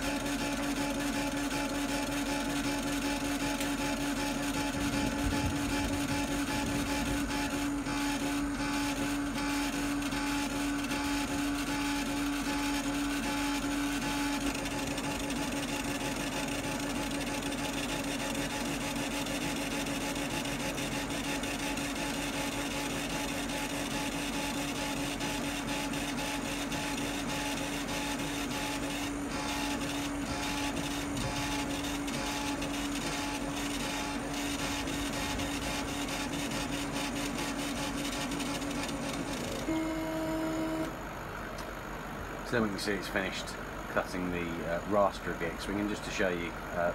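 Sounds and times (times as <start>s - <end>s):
steady machine hum: 0.0s - 46.9s
stepper motors whirring: 2.0s - 17.6s, 24.8s - 40.9s.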